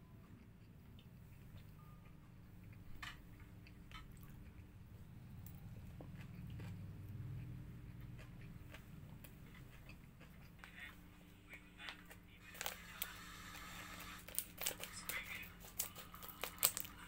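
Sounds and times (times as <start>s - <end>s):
plastic bag crinkling: 12.4s - 17.0s.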